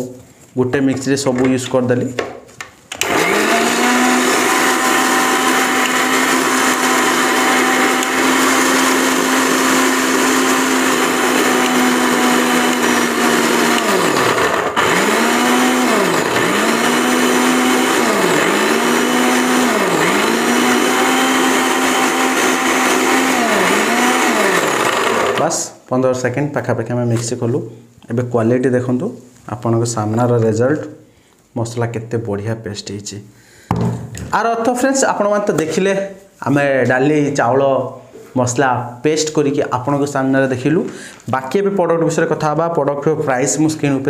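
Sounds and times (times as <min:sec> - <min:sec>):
mixer grinder motor whining: 0:03.0 - 0:25.7.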